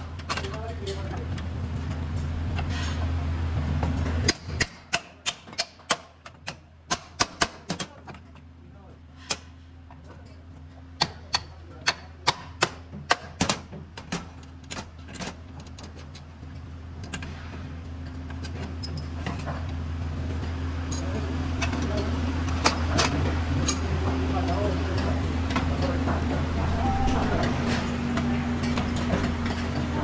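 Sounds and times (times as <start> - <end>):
steady low hum: 13.8 - 30.0.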